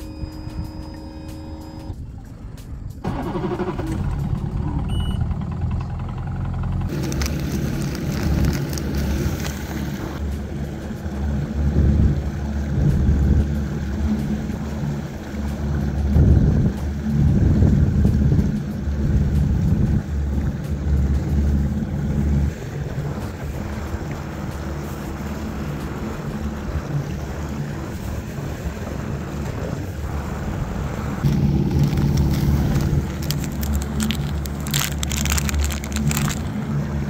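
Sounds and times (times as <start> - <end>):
plastic package crinkling: 6.9 - 9.8, 31.3 - 36.6
wind buffeting microphone: 6.9 - 37.0.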